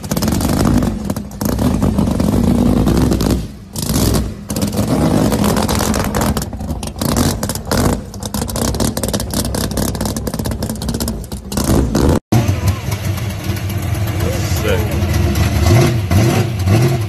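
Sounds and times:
engine crackles: 0.0s - 17.0s
loud choppy race car engine: 0.0s - 17.0s.

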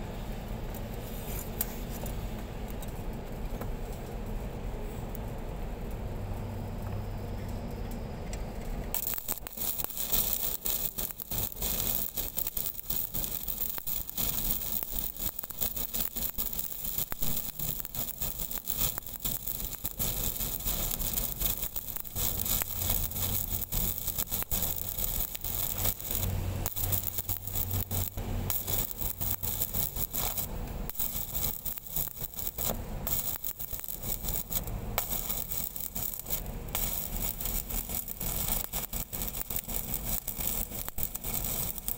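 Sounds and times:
welding arc crackling: 8.7s - 41.9s.

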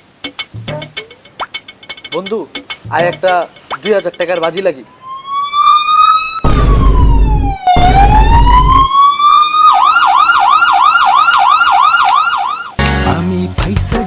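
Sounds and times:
police siren wailing and yelping: 4.9s - 12.8s.

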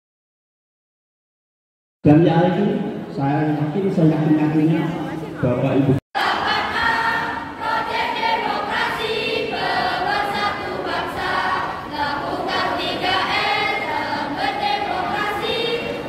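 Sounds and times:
choir singing held notes: 6.2s - 16.0s.

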